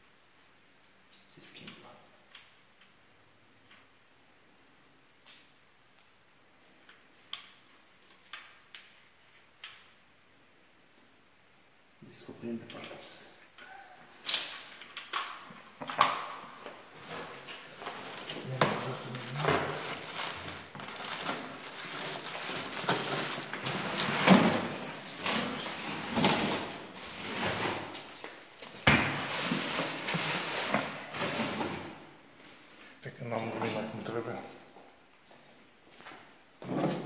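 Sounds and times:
plastic crinkling and rustling: 14.3s - 32.0s.

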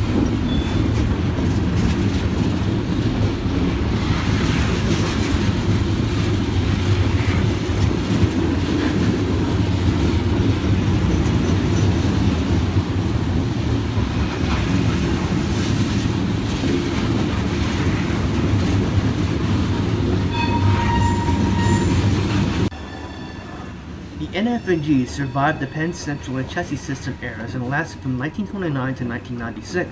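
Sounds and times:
train wheels rumbling on rail: 0.0s - 29.9s
high wheel squeal: 20.3s - 23.8s.

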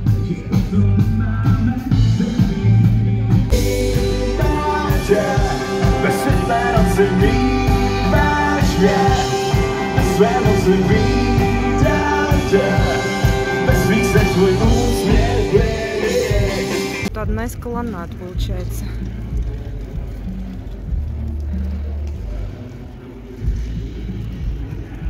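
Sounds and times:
person singing: 0.0s - 17.1s
drum kit: 0.0s - 25.0s
electric guitars and bass: 0.0s - 25.0s.

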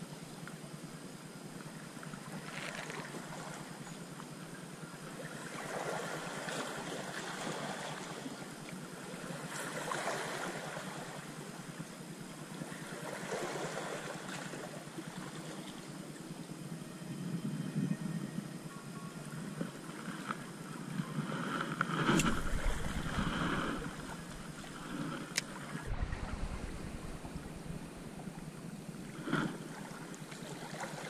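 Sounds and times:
small waves lapping on shore: 1.6s - 16.3s, 19.3s - 31.0s
wind on microphone: 20.8s - 30.0s.

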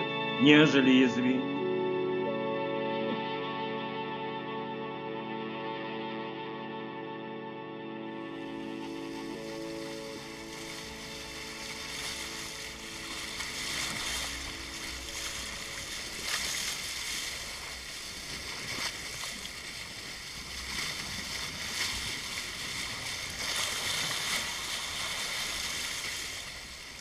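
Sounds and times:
water rushing along boat hull: 8.0s - 27.0s.

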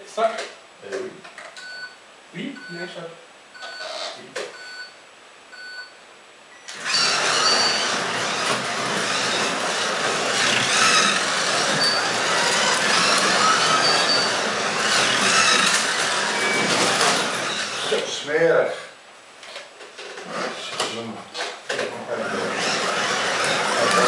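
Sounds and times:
short beeps: 4.6s - 5.0s, 5.6s - 6.7s
slot car motors whining: 6.7s - 18.2s, 22.0s - 24.0s
slot cars running on track: 6.8s - 17.8s, 22.3s - 24.0s.

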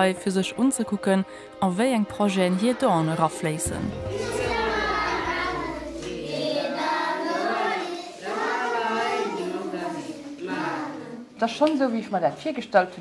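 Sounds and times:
children singing in unison: 3.9s - 11.3s.

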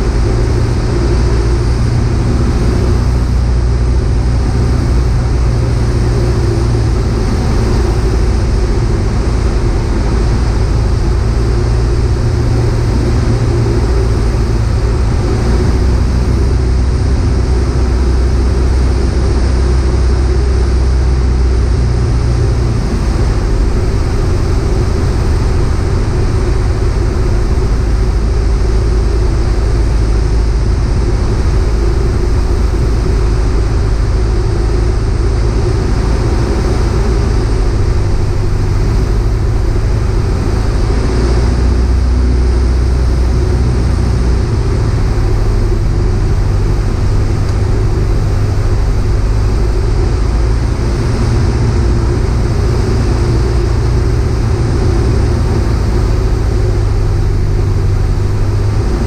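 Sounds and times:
aircraft engine and propeller drone: 0.0s - 59.0s.

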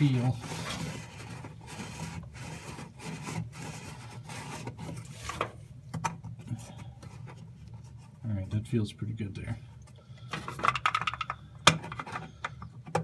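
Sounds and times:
cloth rubbing on plastic: 0.0s - 5.4s.

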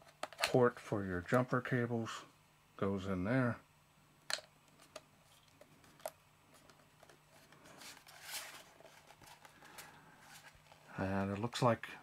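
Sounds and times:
low steady hum: 0.0s - 12.0s
soft rustle: 5.2s - 11.1s.

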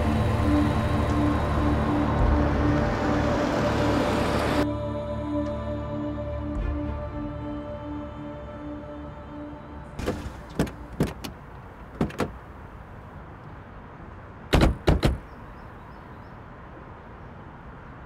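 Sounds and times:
car door slams: 10.0s - 12.4s, 14.5s - 15.3s
car doors opening and shutting: 10.0s - 12.7s, 14.5s - 15.4s.

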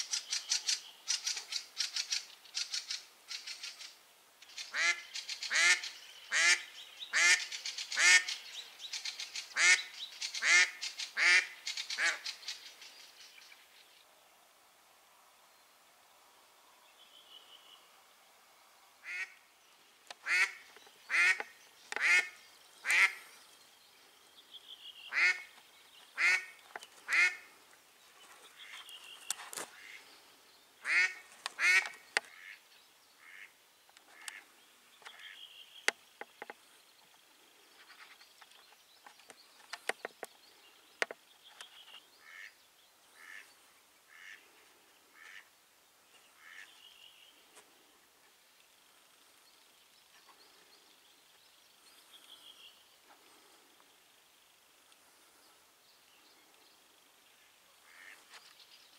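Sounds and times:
duck quacking: 4.7s - 8.3s, 9.6s - 12.2s, 19.0s - 19.4s, 20.2s - 23.2s, 25.1s - 25.5s, 26.2s - 27.5s, 29.8s - 30.0s, 30.8s - 32.6s, 33.2s - 33.5s, 43.2s - 43.5s, 44.1s - 44.4s, 46.4s - 46.7s.

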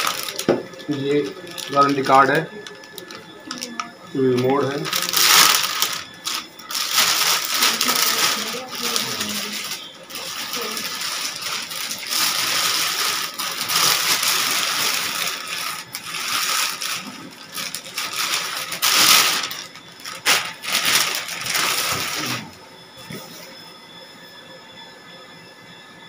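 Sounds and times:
plastic bag crinkling: 0.0s - 22.6s.

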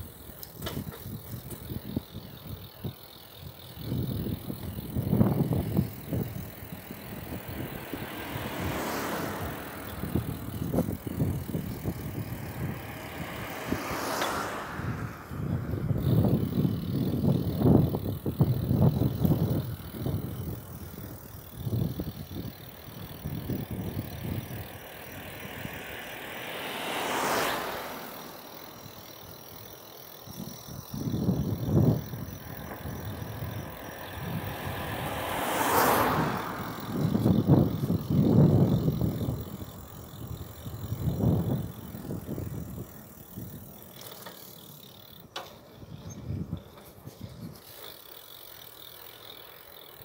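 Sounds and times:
car passing: 0.0s - 45.3s
wind noise: 0.0s - 47.9s
bicycle rattling and knocking: 0.0s - 50.0s
truck driving past: 23.7s - 29.8s, 32.4s - 39.4s.

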